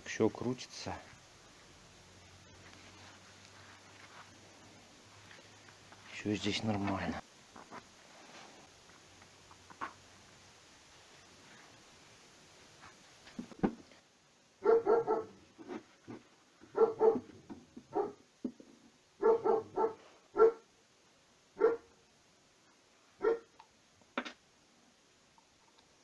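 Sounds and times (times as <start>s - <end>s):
dog barking: 14.6s - 15.4s, 16.7s - 17.3s, 17.9s - 18.2s, 19.2s - 20.7s, 21.6s - 21.9s, 23.2s - 23.6s.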